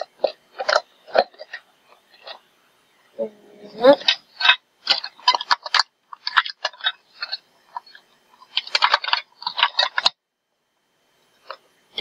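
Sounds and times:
plastic containers clattering: 0.0 - 2.4, 3.9 - 10.2.

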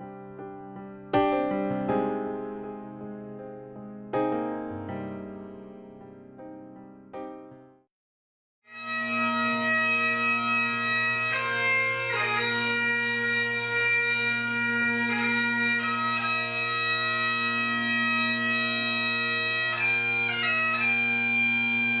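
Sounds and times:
bagpipes playing slow melody: 8.7 - 22.0.

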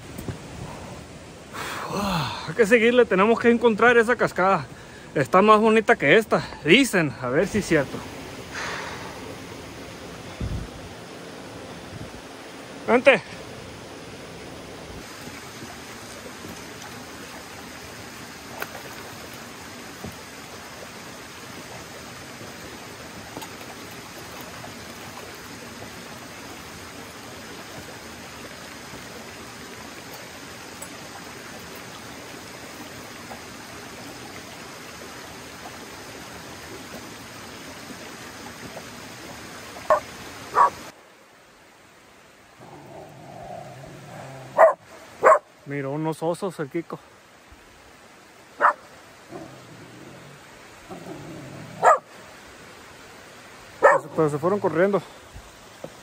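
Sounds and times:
creek water running over rocks: 0.0 - 56.0
dog barking: 39.9 - 40.8, 44.6 - 45.5, 48.6 - 48.8, 51.8 - 52.1, 53.8 - 54.2.

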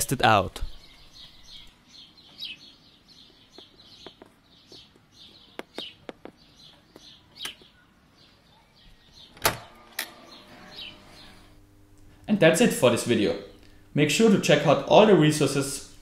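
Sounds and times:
birds chirping: 0.0 - 11.6
lock releasing and door opening: 9.3 - 10.2.

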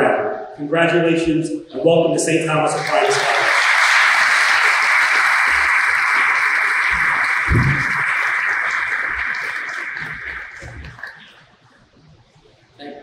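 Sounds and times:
audience applauding: 2.7 - 11.4.

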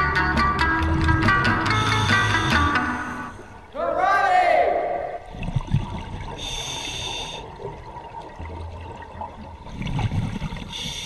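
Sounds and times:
regulator hissing inhalation: 1.7 - 3.5, 6.4 - 7.5, 10.7 - 11.0
exhaled bubbles rushing: 5.2 - 6.6, 7.2 - 10.8.

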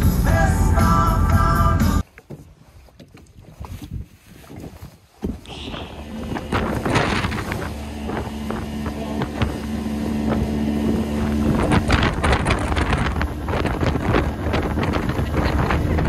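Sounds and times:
hull thumping on waves: 2.1 - 16.0
outboard motor running: 3.3 - 16.0
wind buffeting microphone: 3.4 - 16.0.

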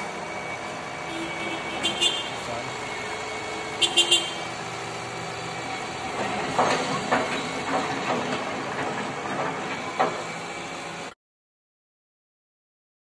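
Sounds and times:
excavator diesel engine running: 0.0 - 11.2
metallic clanks and knocks: 6.1 - 10.3.

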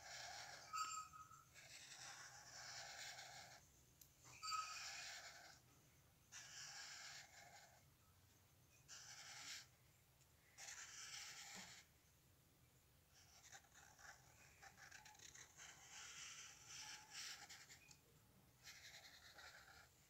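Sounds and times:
marker scratching on paper: 0.0 - 3.7, 4.3 - 5.7, 6.3 - 7.8, 8.7 - 9.8, 10.5 - 11.9, 13.1 - 18.0, 18.6 - 20.0.

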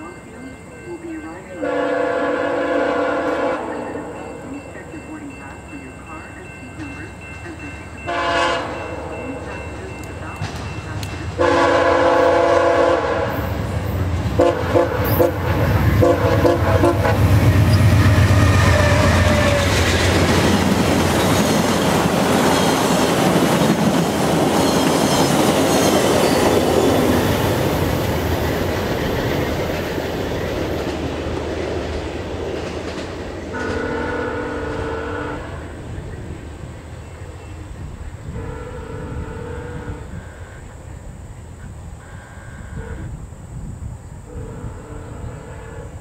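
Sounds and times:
train rumble passing: 0.0 - 46.0
train horn blasts: 1.6 - 4.2, 8.0 - 13.6, 14.4 - 19.9, 33.5 - 35.8, 38.3 - 40.7, 42.0 - 43.2, 44.3 - 46.0.

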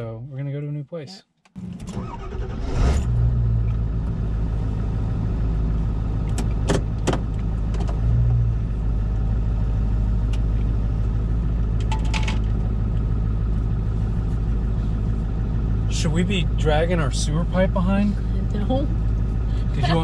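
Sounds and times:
truck engine idling: 3.7 - 20.0.

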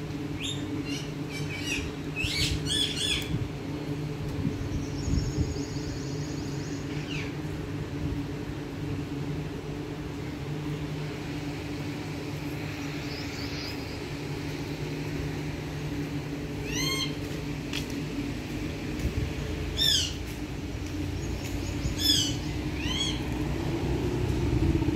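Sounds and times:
low mechanical hum: 0.0 - 24.9
parakeet chirp: 21.3 - 23.2.

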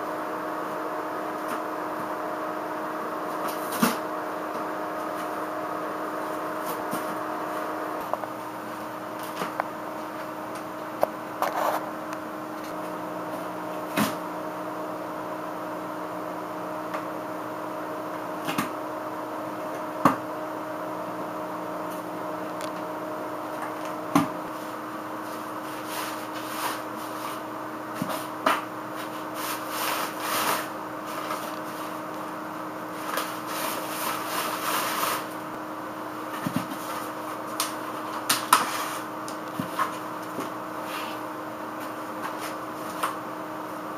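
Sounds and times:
steady hum: 0.0 - 43.9
cat tearing cardboard: 25.7 - 31.8, 33.0 - 35.4, 36.3 - 40.0.

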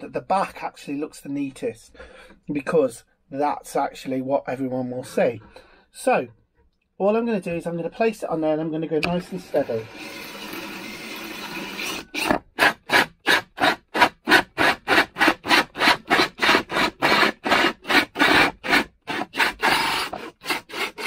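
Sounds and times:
hole saw cutting chipboard: 9.1 - 21.0.

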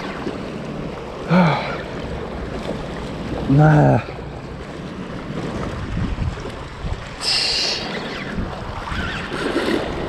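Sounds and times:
water sloshing against rocks: 0.0 - 10.0
wind on microphone: 5.4 - 10.0.

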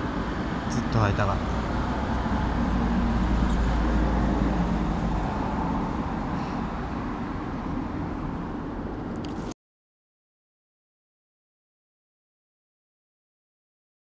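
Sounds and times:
road traffic hum: 0.0 - 9.6.

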